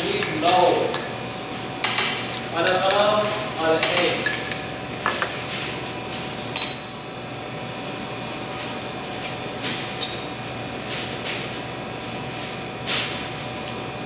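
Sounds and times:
utensil clinking on metal bowl: 0.0s - 1.2s, 1.8s - 5.3s.

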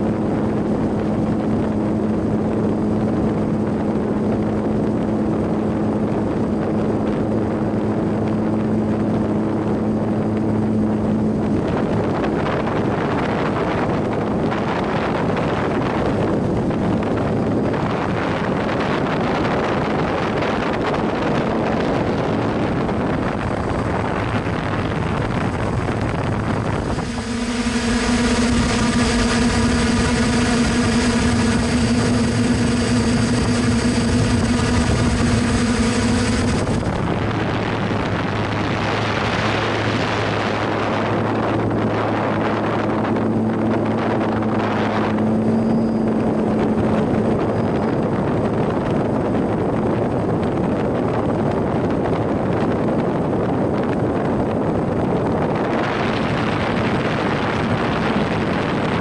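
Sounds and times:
drone motors and propellers humming: 0.0s - 59.0s
rushing noise: 11.6s - 50.9s.

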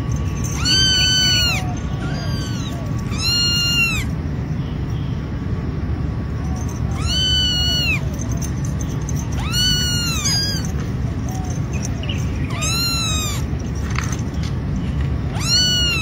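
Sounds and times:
kitten mewing: 0.6s - 4.1s, 6.9s - 8.2s, 9.2s - 11.4s, 12.5s - 13.5s, 15.3s - 16.0s.

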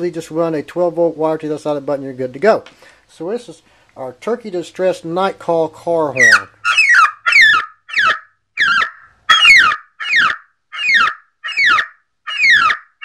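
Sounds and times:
electronic turkey distress call: 6.2s - 13.0s.

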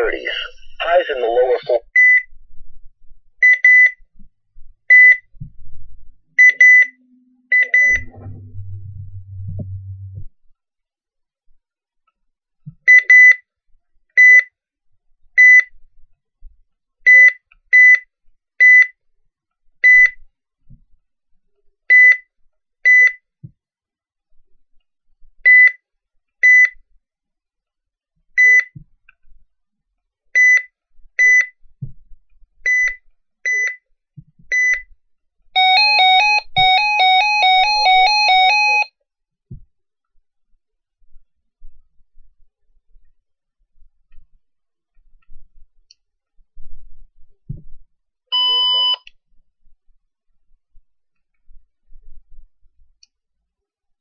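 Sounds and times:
short high key beeps: 6.4s - 10.2s, 48.4s - 49.0s
warbling two-tone alarm: 7.6s - 10.2s, 35.6s - 38.9s.

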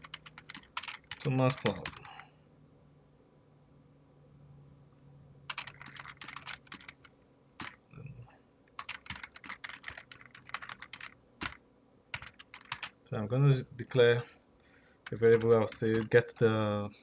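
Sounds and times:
computer keyboard typing: 0.0s - 2.1s, 5.5s - 7.8s, 8.8s - 13.0s, 15.0s - 16.5s.

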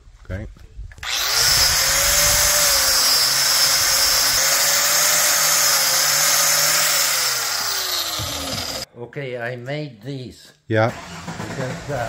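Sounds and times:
angle grinder motor whine: 1.0s - 8.9s
wire brush scrubbing steel: 1.0s - 8.9s.

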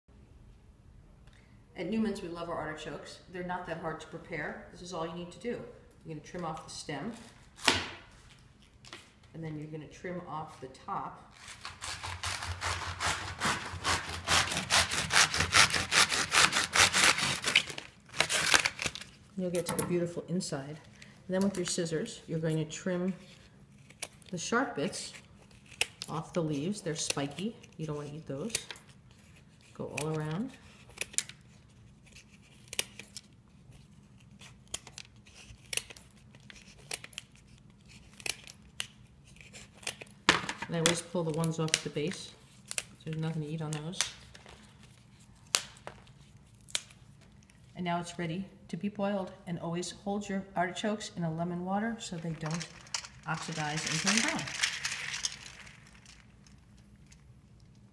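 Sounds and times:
knife sawing through artichoke leaves: 11.4s - 18.9s.

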